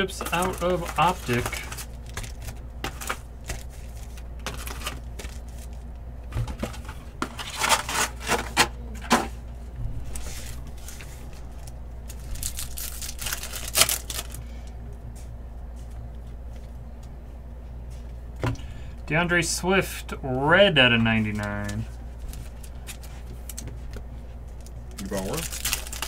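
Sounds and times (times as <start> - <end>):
card wrappers crinkling: 0.0 - 8.5, 10.1 - 14.4, 21.1 - 26.0
steady low hum: 0.0 - 26.0.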